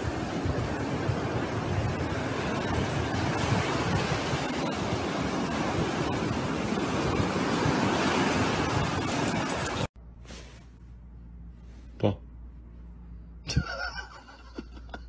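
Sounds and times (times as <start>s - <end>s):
ocean surf on beach: 0.0s - 9.9s
wind rumbling on microphone: 0.0s - 9.9s.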